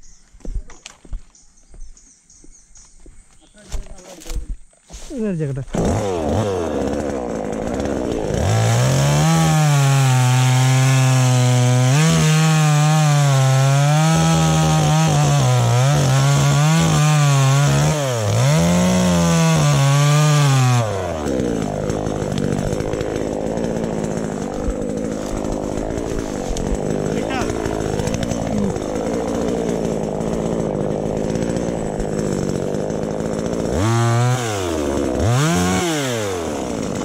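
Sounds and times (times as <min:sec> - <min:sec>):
chainsaw cutting wood: 0:03.7 - 0:37.0.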